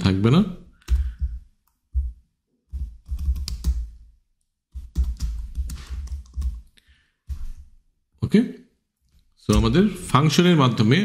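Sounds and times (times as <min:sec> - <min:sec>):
computer keyboard typing: 0:00.8 - 0:04.0, 0:04.7 - 0:06.8.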